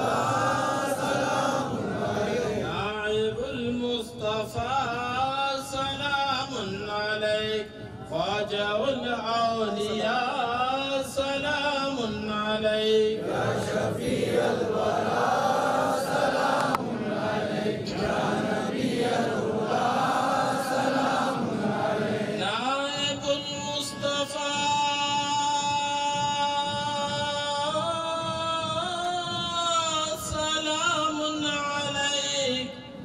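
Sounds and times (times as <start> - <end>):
men chanting together: 0.0 - 3.6, 11.8 - 22.7.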